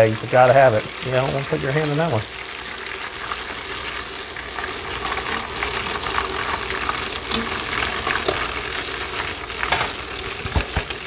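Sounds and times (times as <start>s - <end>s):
deep-frying sizzle: 0.0s - 11.0s
oil pops and crackles: 10.3s - 11.0s.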